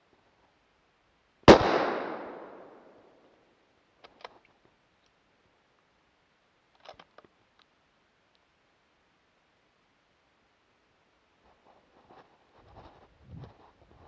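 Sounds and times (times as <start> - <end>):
rifle shot: 1.5 - 3.0
faint clicks: 6.7 - 8.5.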